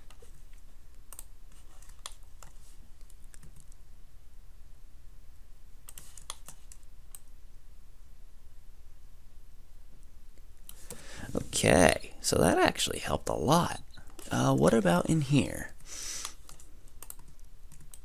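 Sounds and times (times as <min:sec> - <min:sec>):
faint low hum: 0:00.0 - 0:18.0
keyboard and mouse clicking: 0:01.1 - 0:03.8, 0:05.9 - 0:07.3, 0:16.2 - 0:18.0.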